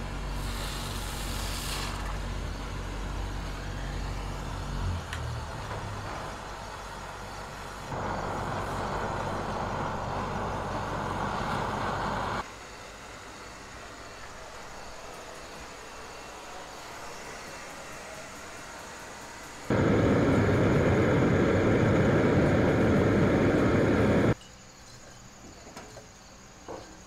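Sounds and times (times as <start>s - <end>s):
torch flame hissing: 0.2s - 2.3s, 19.7s - 24.4s
low steady hum: 19.7s - 24.4s.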